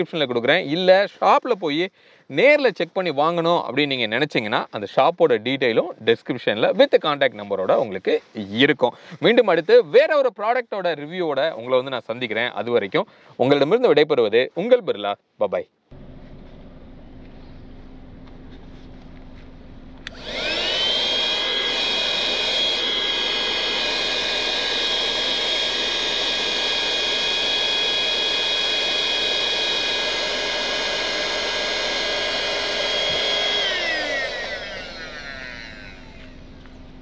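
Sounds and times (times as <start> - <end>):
air pump motor whining: 19.9 - 37.0
air pump switch click: 20.0 - 36.4.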